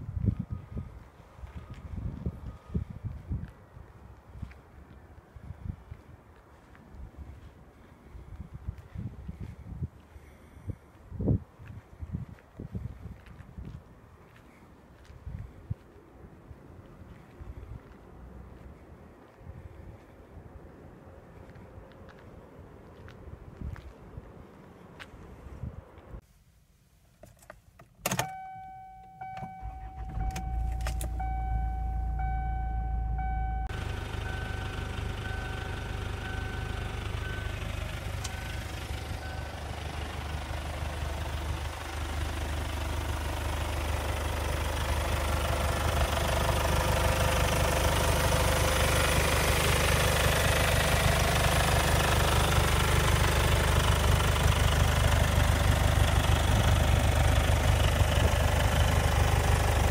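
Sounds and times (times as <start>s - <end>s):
car engine starting and idling: 27.8s - 59.9s
dashboard warning chime: 28.1s - 40.0s.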